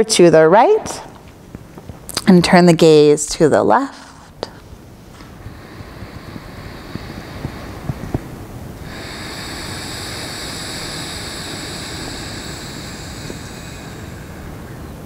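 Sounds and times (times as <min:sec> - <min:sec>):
person exhaling: 0:05.2 - 0:15.0.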